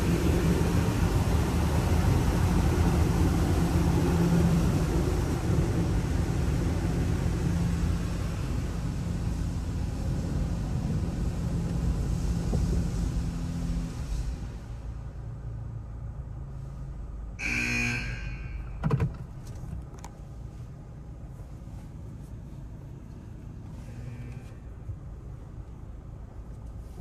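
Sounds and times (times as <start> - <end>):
motor or pump hum: 17.4 - 18.8.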